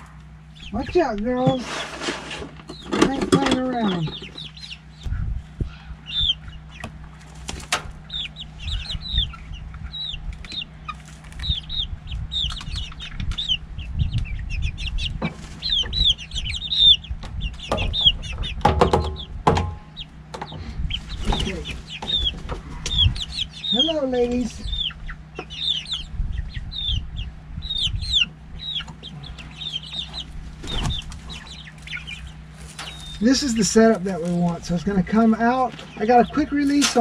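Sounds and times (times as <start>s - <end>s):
hens calling: 0.0s - 37.0s
knocks and low bumps: 17.1s - 23.4s.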